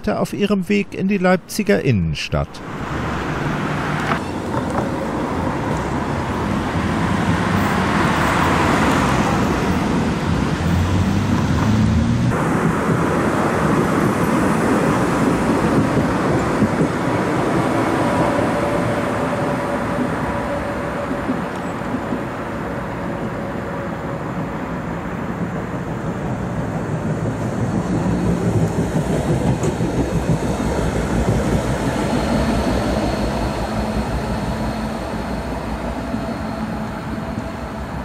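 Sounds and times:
road traffic rumble: 0:01.8 - 0:16.8
tram passing with whine: 0:02.1 - 0:38.0.

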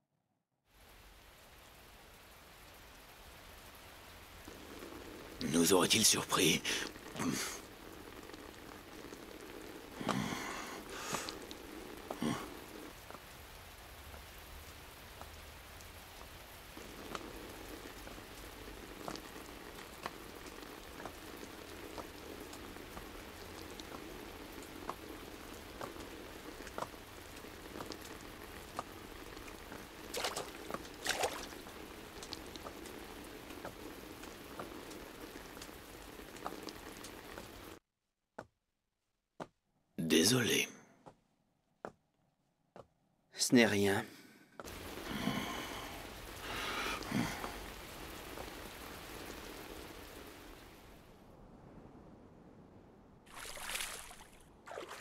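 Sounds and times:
steady rain: 0:00.7 - 0:37.8, 0:43.4 - 0:55.0
raindrops ticking: 0:00.8 - 0:37.8, 0:44.6 - 0:50.6.

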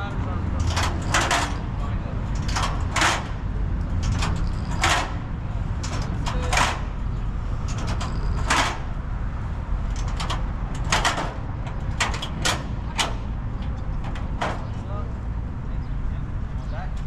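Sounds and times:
metal ladder clattering and sliding: 0:00.5 - 0:09.1, 0:09.8 - 0:14.8.

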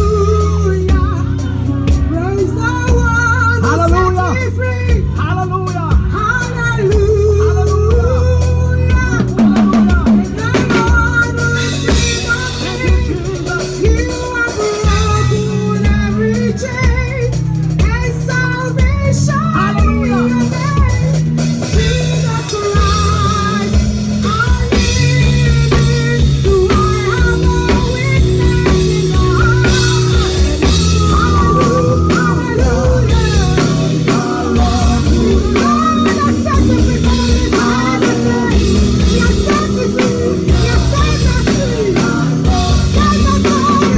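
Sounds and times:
drum kit: 0:00.0 - 0:43.9
live band playing: 0:00.0 - 0:43.9
people singing: 0:19.1 - 0:43.9.

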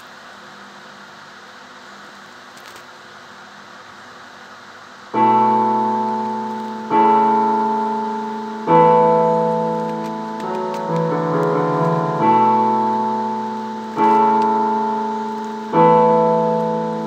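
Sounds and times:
faint steady hiss: 0:00.0 - 0:17.0
piano chords: 0:05.1 - 0:17.0.

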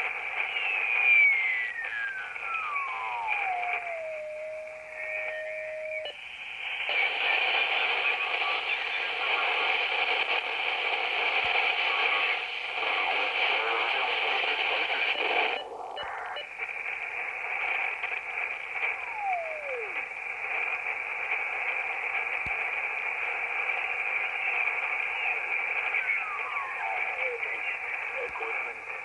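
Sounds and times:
shortwave radio static: 0:00.0 - 0:29.0
radio whistle falling in pitch: 0:00.3 - 0:06.2.

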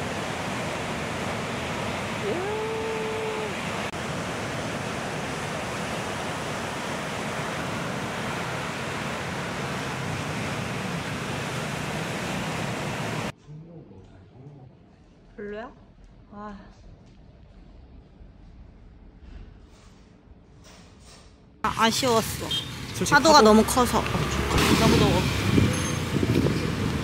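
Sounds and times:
ocean surf breaking: 0:00.0 - 0:13.3, 0:21.7 - 0:27.0.

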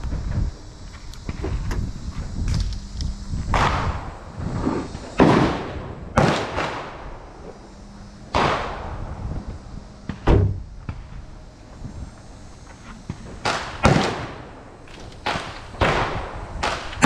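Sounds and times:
gunshots with echoing tail: 0:05.2 - 0:07.1, 0:13.4 - 0:14.4.

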